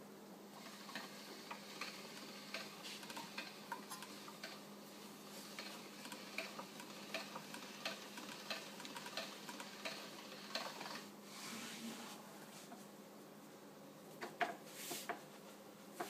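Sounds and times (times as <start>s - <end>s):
pasta machine clicking: 0.6s - 4.6s, 5.5s - 11.1s
soft rustle of dough: 11.2s - 13.6s.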